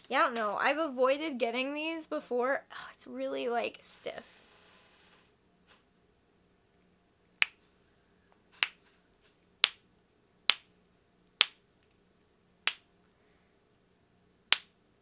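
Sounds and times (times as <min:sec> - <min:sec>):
silicone fidget toy snapping: 0:14.5 - 0:14.8.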